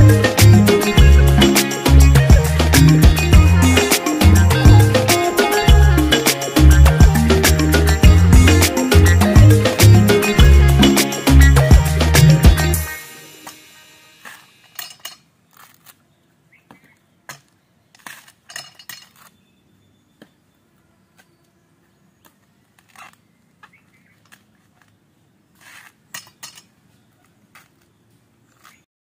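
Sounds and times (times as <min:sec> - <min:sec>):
background music: 0:00.0 - 0:14.4
coconut husks tearing on spike: 0:15.5 - 0:16.0, 0:17.4 - 0:19.4.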